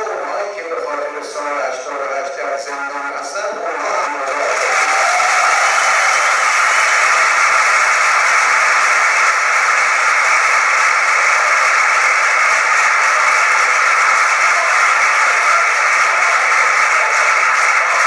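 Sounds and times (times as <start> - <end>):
audience cheering and applauding: 4.0 - 18.0.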